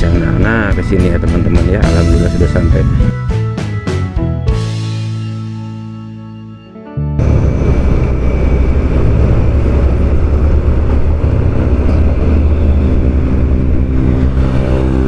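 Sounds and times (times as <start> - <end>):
road and wind noise: 0.0 - 3.2, 7.2 - 15.0
motorcycle engine running: 7.2 - 15.0.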